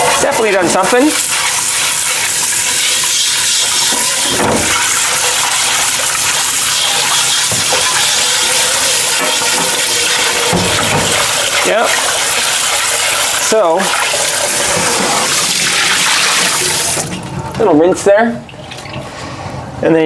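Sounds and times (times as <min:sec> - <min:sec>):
tap water splashing into pot: 0:01.2 - 0:17.2.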